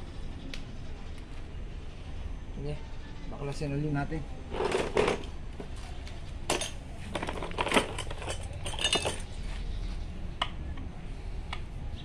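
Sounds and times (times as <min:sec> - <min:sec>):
metal tool clinking: 0:06.5 - 0:09.3.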